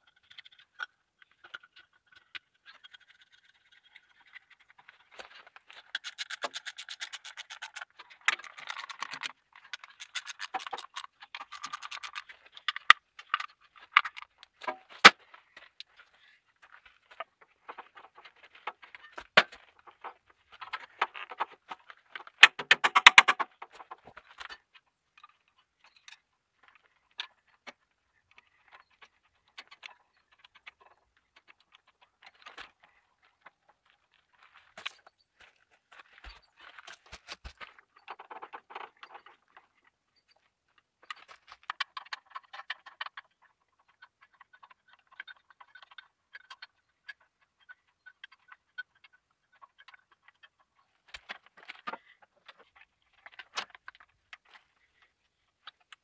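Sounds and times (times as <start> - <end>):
hand tools clicking on metal: 5.9 - 12.2.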